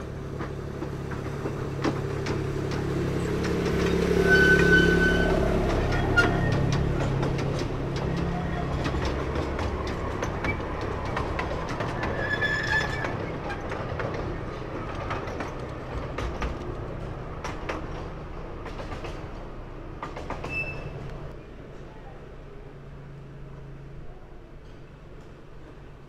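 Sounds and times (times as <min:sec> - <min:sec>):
wheels clicking over rail joints: 0:00.0 - 0:22.0
miniature train rolling past: 0:00.0 - 0:26.0
high-pitched wheel squeal: 0:03.9 - 0:06.9, 0:12.0 - 0:13.7, 0:20.5 - 0:21.0.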